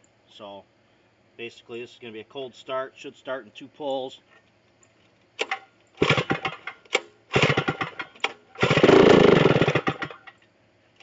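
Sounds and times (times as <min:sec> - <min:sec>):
two-stroke engine firing: 0:05.4 - 0:10.3
recoil starter pulls: 0:05.4 - 0:10.4.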